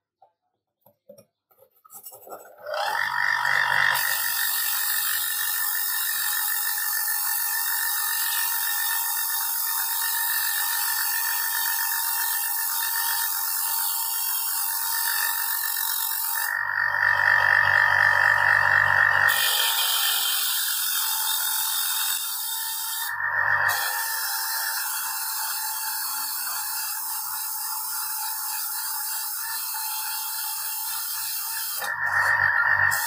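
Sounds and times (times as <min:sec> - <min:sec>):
wire brush wheel grinding metal: 0:21.7 - 0:33.0.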